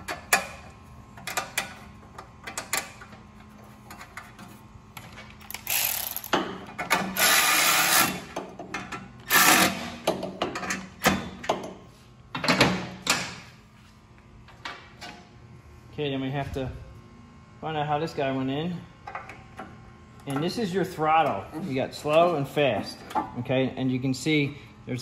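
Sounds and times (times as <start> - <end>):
electric ratchet running: 5.4 - 8.4, 9.2 - 10.0.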